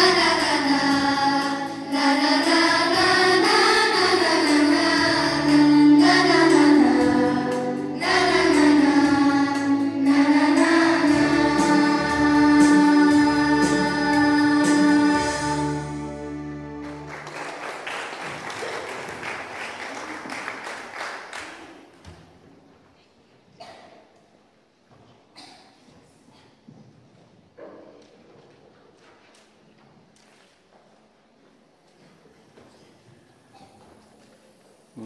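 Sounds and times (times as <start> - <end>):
children's choir singing: 0.0 - 17.2
noisy room sound: 16.8 - 35.0.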